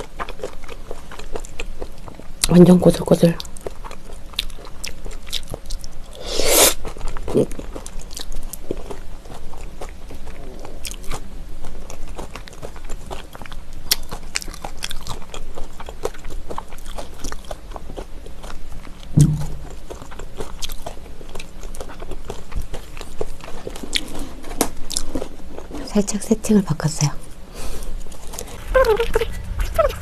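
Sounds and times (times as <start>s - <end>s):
close-miked chewing: 0.0s - 26.4s
brief low hum: 19.2s - 19.8s, 28.4s - 30.0s.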